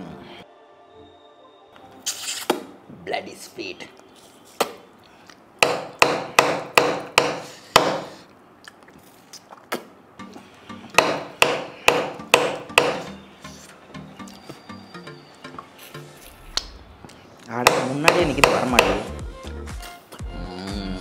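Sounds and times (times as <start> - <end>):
bone knocking: 5.6 - 8.1, 10.9 - 13.1, 17.6 - 19.1.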